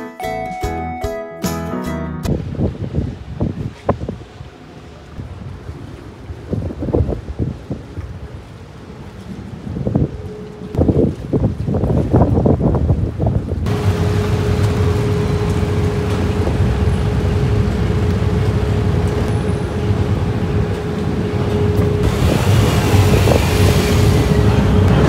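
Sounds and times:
wind buffeting microphone: 2.3s - 25.0s
steady hum: 13.7s - 25.0s
vehicles driving by slowly: 13.7s - 25.0s.

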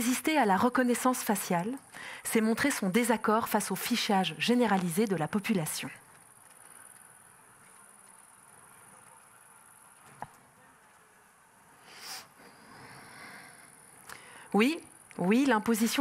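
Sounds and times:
thin high-pitched hiss: 11.8s - 14.2s.

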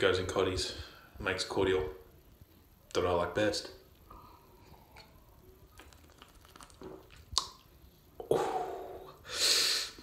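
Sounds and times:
man sipping and swallowing: 4.6s - 9.2s
loud breath: 9.2s - 10.0s.

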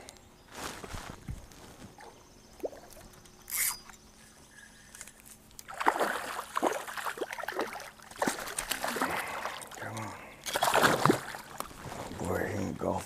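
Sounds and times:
water splashing and dripping: 5.6s - 11.8s.

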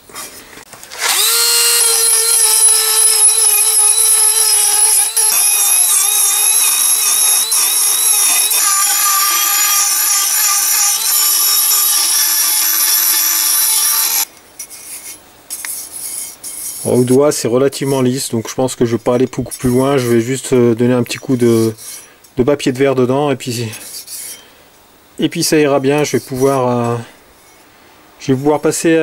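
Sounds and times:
grinder whining against steel: 0.9s - 14.3s.

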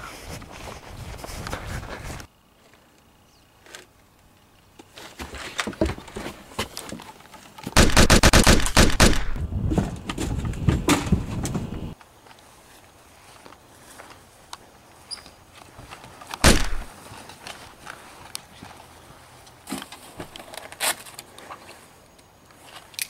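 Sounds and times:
automatic gunfire: 7.8s - 9.4s, 16.4s - 16.9s.

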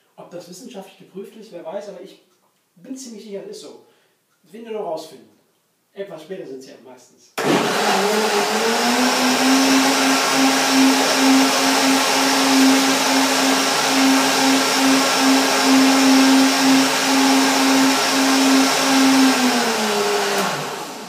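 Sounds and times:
blender running: 7.4s - 21.0s.

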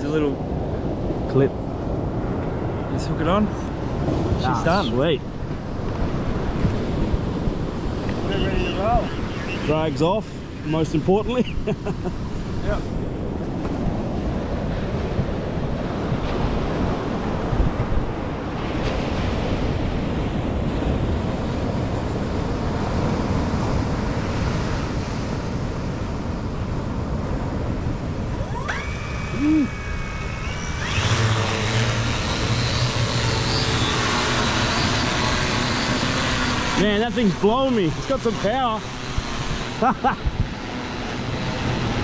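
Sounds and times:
wind on the microphone: 0.0s - 42.0s
drone motors whining: 28.2s - 42.0s.

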